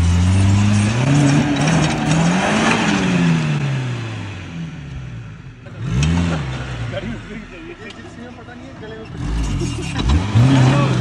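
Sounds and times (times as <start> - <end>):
engine revving hard: 0.0 - 4.7, 5.7 - 7.1, 9.1 - 11.0.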